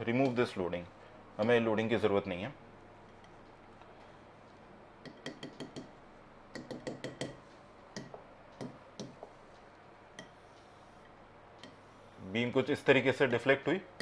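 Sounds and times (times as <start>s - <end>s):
pen tapping on glass screen: 5.0s - 5.9s, 6.5s - 7.4s, 8.0s - 9.3s.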